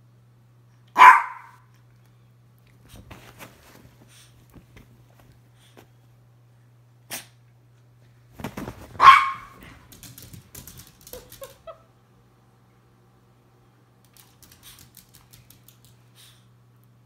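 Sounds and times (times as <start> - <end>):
dog barking: 0.9 - 1.6, 9.0 - 9.6
rustling and scrambling: 8.3 - 11.6
claws clicking on tile floor: 9.6 - 11.8, 14.0 - 16.0.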